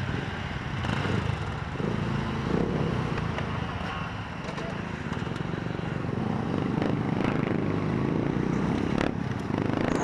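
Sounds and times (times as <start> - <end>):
road noise: 0.0 - 10.0.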